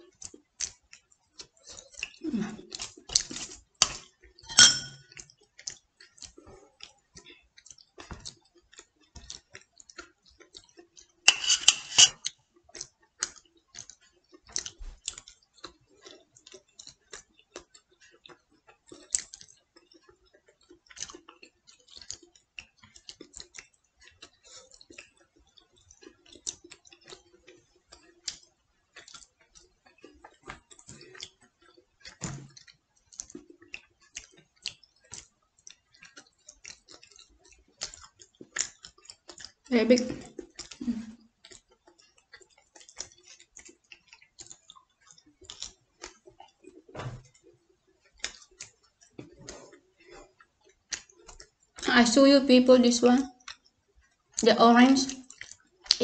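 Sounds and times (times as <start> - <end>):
chewing with wet mouth clicks: 0.0 - 11.2, 12.1 - 51.9, 53.3 - 56.0.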